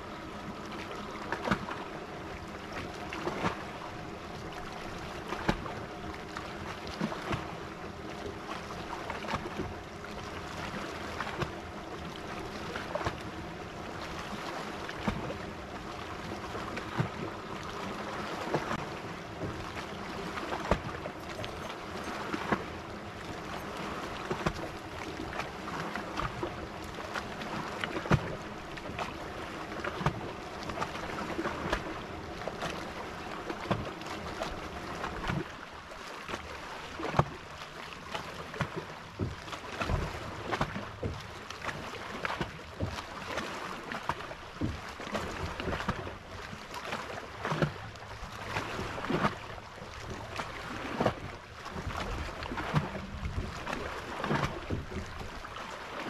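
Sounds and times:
water slapping hull: 0.0 - 56.0.

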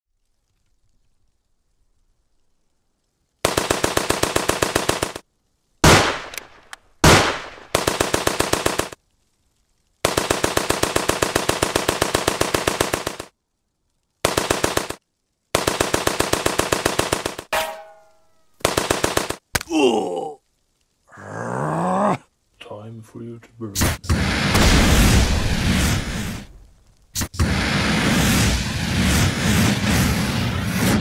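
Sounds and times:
machine-gun fire bursts: 3.4 - 5.2, 7.0 - 9.0, 10.0 - 13.3, 14.2 - 17.5, 18.6 - 19.4
loud blasts: 23.8 - 31.0.

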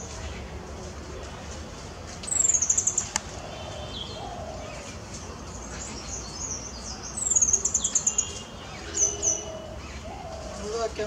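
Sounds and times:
soft bird calls: 2.2 - 11.0.

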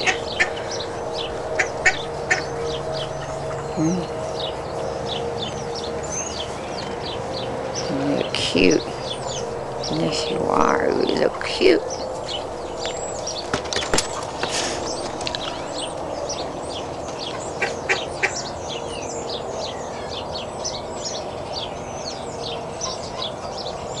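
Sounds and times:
small birds chirping: 0.0 - 24.0
steady background hum: 0.0 - 24.0.

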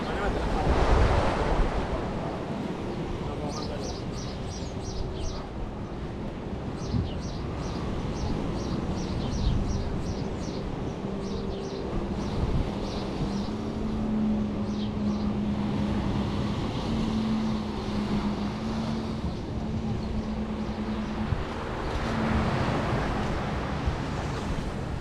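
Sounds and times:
surf: 0.0 - 25.0
wind: 0.0 - 25.0
bird chirping: 3.5 - 5.5.

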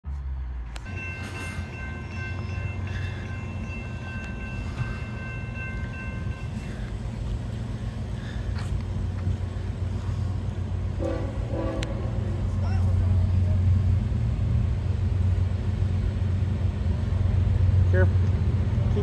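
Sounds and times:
train rumble: 0.1 - 19.0
locomotive horn chord: 10.9 - 12.6.

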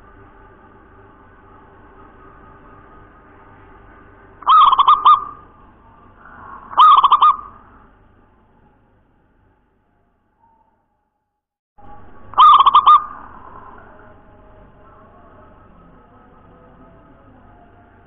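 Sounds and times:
faint low hum: 0.0 - 11.2, 11.8 - 18.0
dove cooing: 4.4 - 7.9, 11.9 - 15.6.

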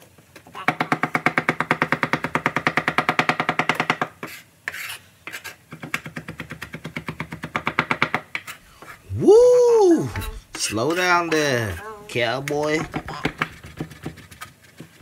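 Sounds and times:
knife chopping on wooden board: 0.7 - 4.4, 5.3 - 8.9, 12.5 - 15.0.

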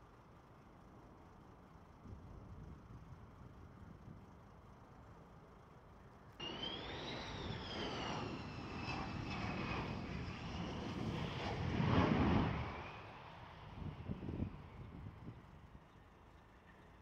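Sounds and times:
jet engine whine: 6.3 - 16.8
jet roar: 6.4 - 15.1.

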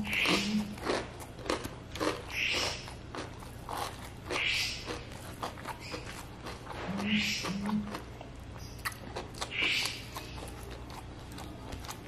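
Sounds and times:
man chewing food: 0.0 - 12.0.

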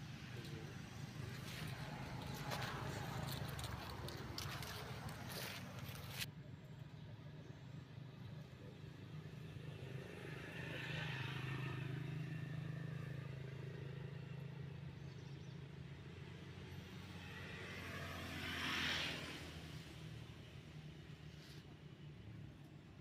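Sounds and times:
vehicle engine humming: 0.0 - 15.4.

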